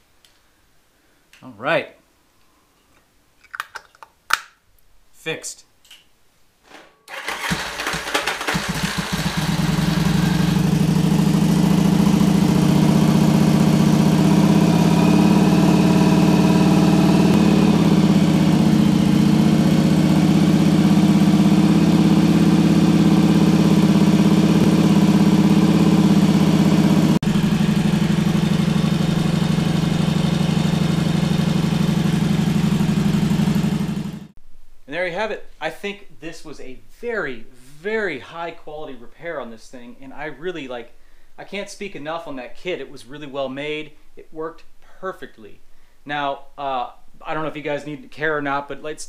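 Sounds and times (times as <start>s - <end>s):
motorcycle engine cranking: 6.9s - 11.0s
motorcycle engine idling: 7.2s - 34.3s.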